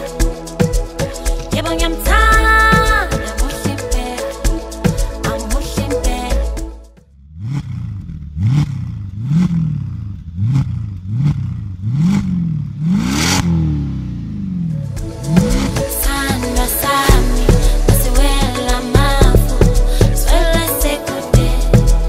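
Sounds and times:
car engine revving: 7.1s - 22.0s.

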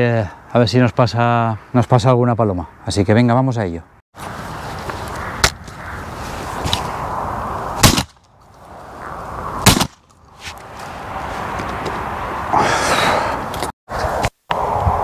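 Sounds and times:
shotgun shots: 7.8s - 8.2s, 9.6s - 10.0s.

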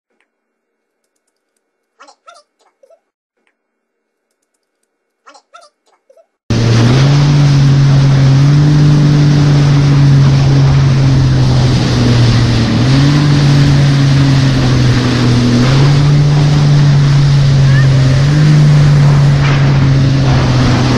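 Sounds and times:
jet ski engine: 6.5s - 20.9s.

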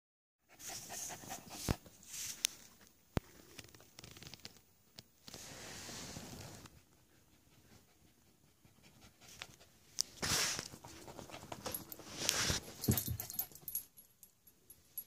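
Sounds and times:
dog panting: 0.5s - 1.9s, 6.8s - 9.8s
metal collar tags jingling: 12.8s - 15.0s.

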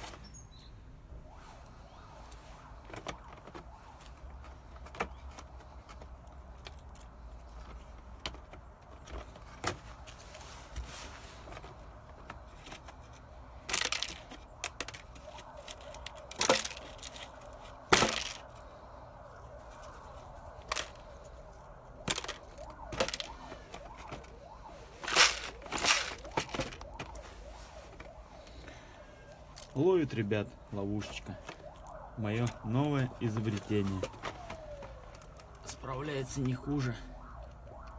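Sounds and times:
plastic bottle clicks and crackles: 13.6s - 18.6s.

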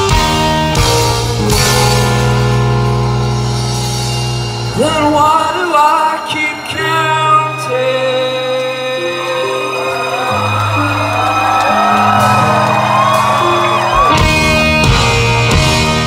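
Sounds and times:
live rock band chord: 0.0s - 5.5s, 12.3s - 16.0s
person singing: 4.8s - 10.5s.

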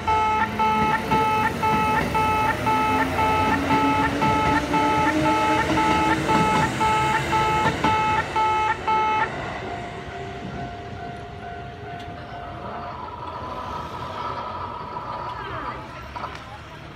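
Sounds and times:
steady electronic tone: 0.0s - 11.8s
level crossing alarm beeping: 0.0s - 12.9s
passing train rumble: 0.0s - 16.9s.

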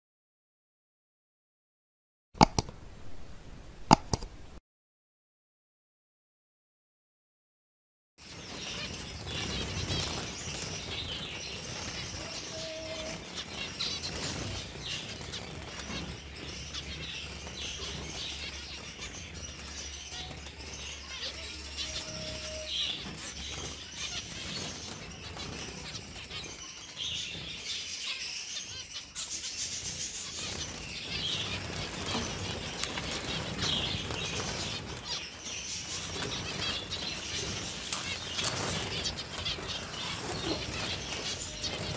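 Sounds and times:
wings flapping: 8.2s - 27.8s, 28.7s - 41.9s
high chirping calls: 8.2s - 41.9s.

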